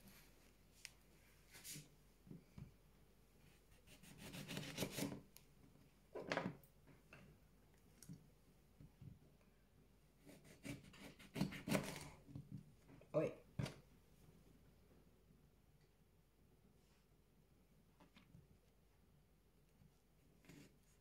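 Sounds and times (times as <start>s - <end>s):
knife cutting lemon on board: 3.9s - 5.2s, 10.3s - 12.1s.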